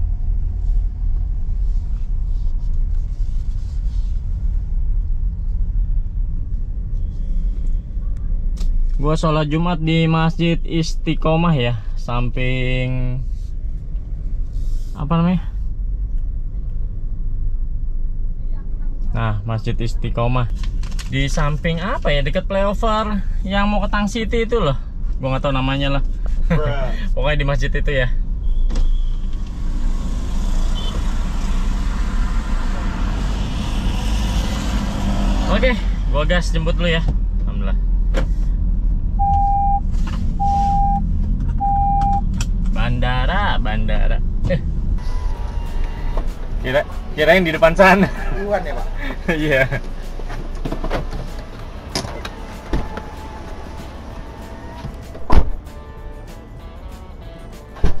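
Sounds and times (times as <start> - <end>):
car engine rumble: 0.0 - 58.0
road noise: 0.0 - 58.0
short high beep: 39.2 - 39.8, 40.4 - 41.0, 41.6 - 42.2
car door slamming shut: 54.8 - 55.6, 57.8 - 58.0.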